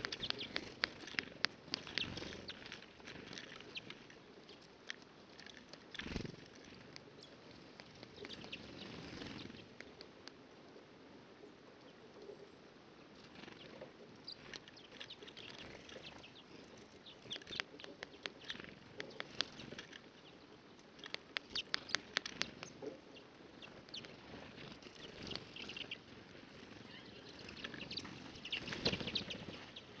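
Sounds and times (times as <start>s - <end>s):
high bird chirps: 0.0s - 0.9s, 21.4s - 26.1s, 26.7s - 30.0s
birds pecking at feeder: 0.0s - 10.6s, 13.0s - 30.0s.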